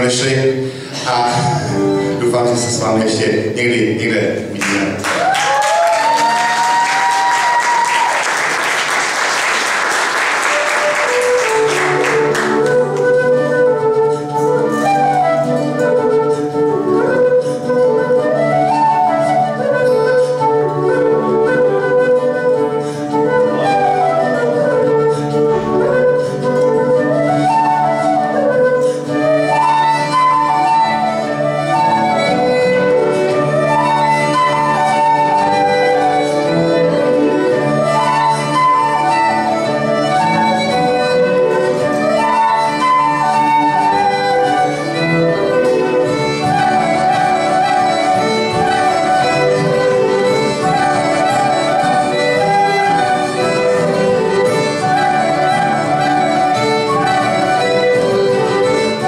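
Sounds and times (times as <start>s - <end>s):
flute melody: 0.0s - 59.0s
folk band playing: 0.0s - 59.0s
audience applause: 4.6s - 13.2s.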